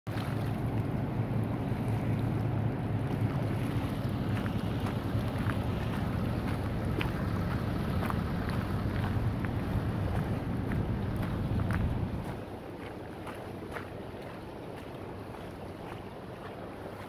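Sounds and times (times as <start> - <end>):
river current rushing: 0.1 - 17.0
wind rumbling on microphone: 0.1 - 17.0.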